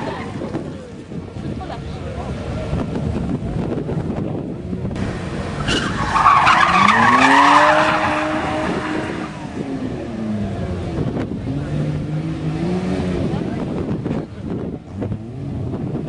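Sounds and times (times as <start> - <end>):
rally car engine revving: 0.0 - 16.0
tyres squealing on tarmac: 5.6 - 9.5.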